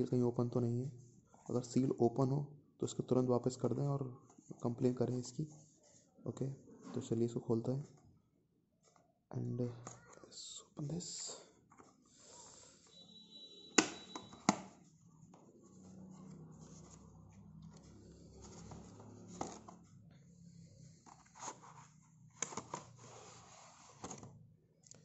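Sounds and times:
cardboard packaging rustling: 16.0s - 20.0s.

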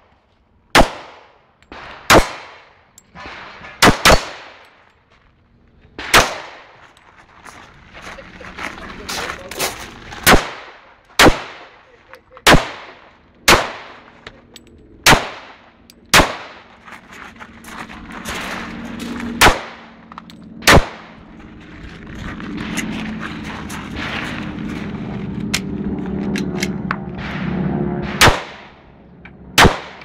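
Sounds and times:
pistol shots: 0.7s - 4.7s, 6.0s - 6.8s, 10.2s - 11.8s, 12.4s - 14.1s, 15.0s - 16.7s, 19.3s - 20.0s, 20.6s - 21.2s, 27.2s - 28.8s, 29.6s - 30.0s.

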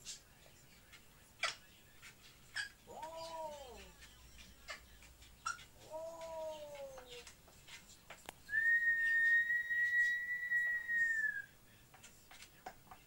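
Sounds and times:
parrot calls: 2.5s - 7.4s
parrot long steady whistle: 8.5s - 11.5s.

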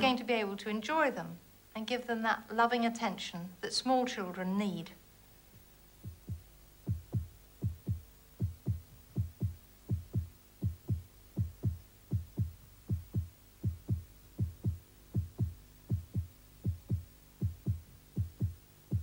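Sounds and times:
faint steady hum: 0.0s - 19.0s
heartbeat thumps: 5.5s - 19.0s.

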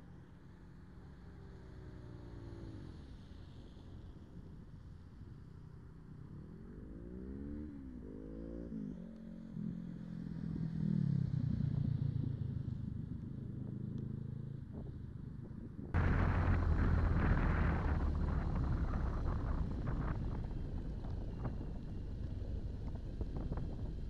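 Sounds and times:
motorcycle engine accelerating: 16.0s - 24.0s.

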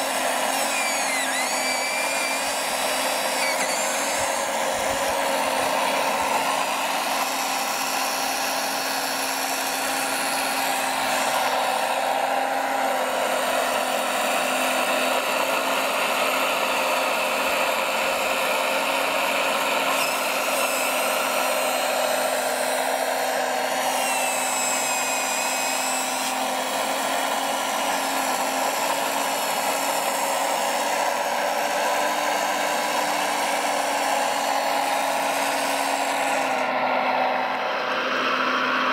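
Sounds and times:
electric saw cutting log: 0.0s - 38.9s
model motors whining: 0.0s - 38.9s.

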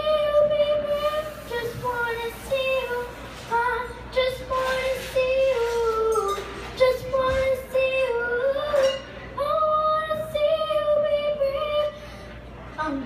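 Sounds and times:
girl singing into a microphone: 0.0s - 13.0s.

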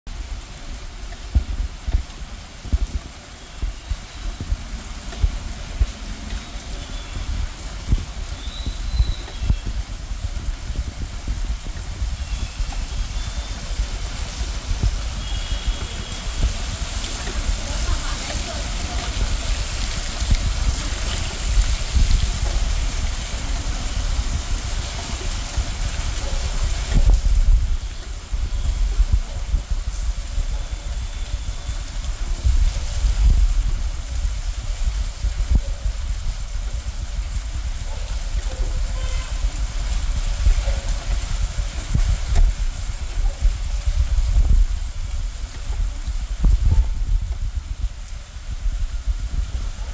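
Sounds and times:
rain and flowing water hiss: 0.1s - 49.9s.

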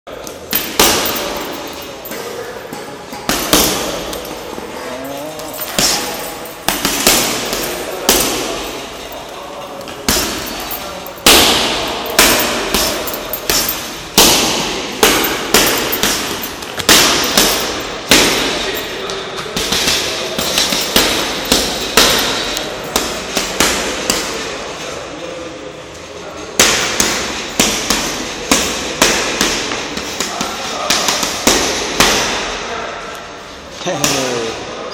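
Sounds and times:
boxing gloves punching heavy bag: 0.5s - 1.7s, 3.2s - 4.4s, 5.0s - 9.1s, 9.8s - 24.6s, 26.6s - 32.6s.

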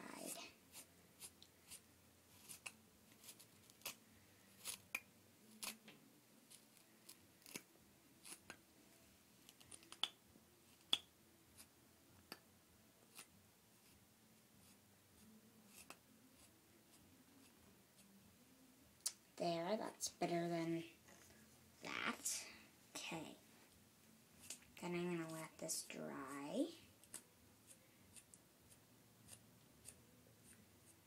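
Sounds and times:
brush scratching plush toy fur: 0.2s - 4.0s, 4.6s - 4.9s, 6.5s - 7.6s, 8.2s - 8.5s.

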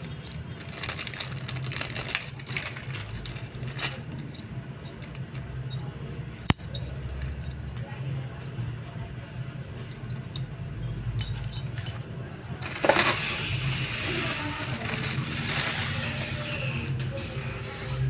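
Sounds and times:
plastic bag crinkling: 0.0s - 3.8s, 12.6s - 16.8s
metal sprockets clinking: 0.0s - 7.6s, 11.2s - 12.0s.

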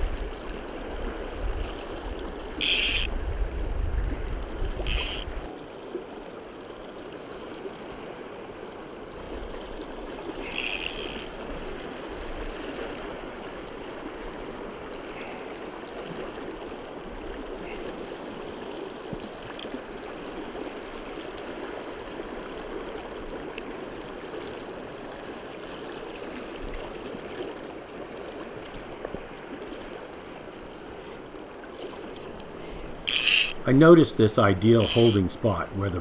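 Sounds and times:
faint ticks: 2.6s - 3.1s, 4.8s - 5.4s, 10.5s - 11.9s, 19.1s - 19.8s, 32.1s - 33.7s.

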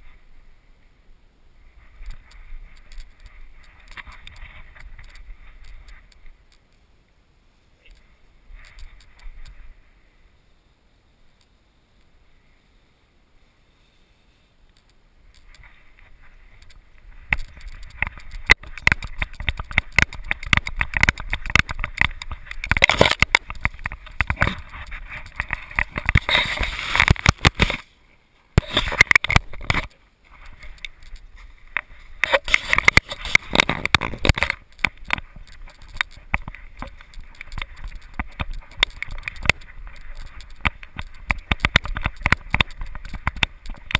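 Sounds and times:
camera handling noise: 2.0s - 6.6s, 14.7s - 27.9s, 28.6s - 43.9s
knocks and scrapes on camera housing: 17.3s - 27.8s, 28.6s - 29.9s, 31.8s - 43.9s.

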